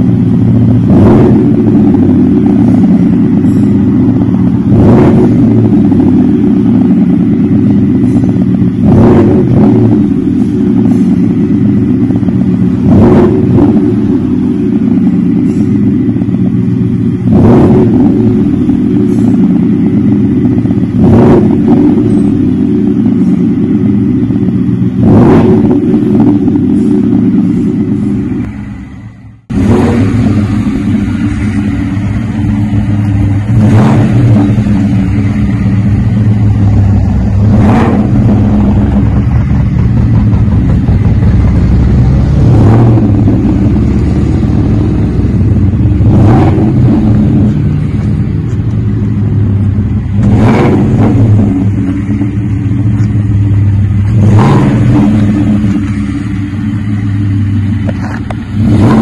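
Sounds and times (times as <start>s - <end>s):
truck engine idling and revving: 0.0s - 59.0s.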